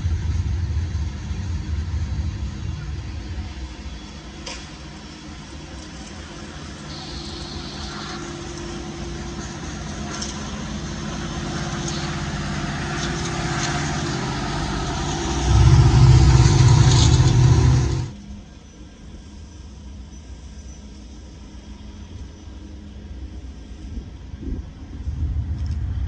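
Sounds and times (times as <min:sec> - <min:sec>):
diesel locomotive engine rumble: 0:00.0 - 0:26.0
freight train wheel rumble: 0:00.0 - 0:26.0
high-pitched wheel squeals: 0:06.8 - 0:18.2.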